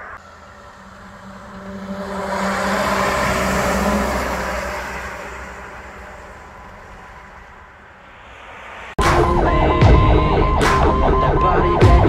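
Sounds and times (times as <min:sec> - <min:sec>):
fire truck diesel engine passing: 0:00.0 - 0:09.0.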